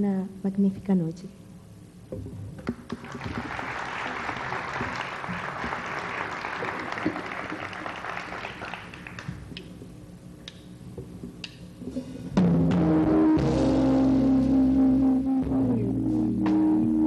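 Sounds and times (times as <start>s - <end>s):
audience applauding: 2.8s - 9.6s.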